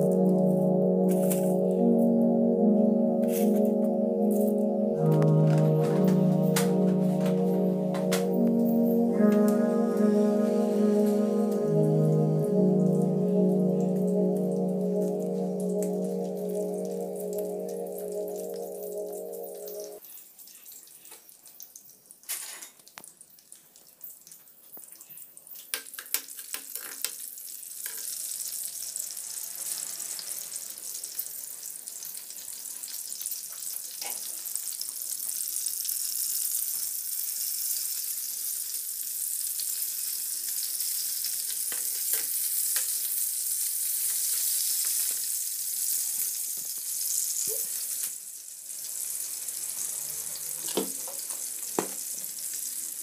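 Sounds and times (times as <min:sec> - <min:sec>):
oil sizzling in a frying pan: 0:20.0 - 0:53.0.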